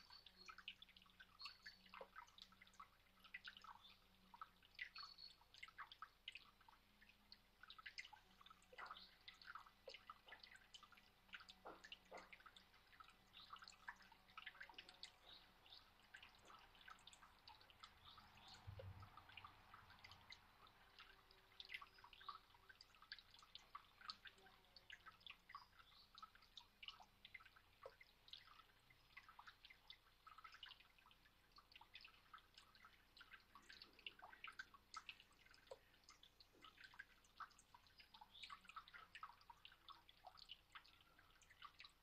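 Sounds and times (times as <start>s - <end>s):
fountain water trickling: 0.0s - 42.0s.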